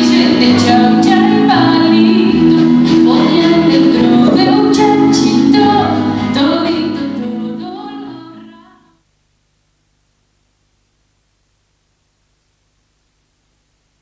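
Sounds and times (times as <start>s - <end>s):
woman singing with instrumental backing: 0.0s - 9.0s.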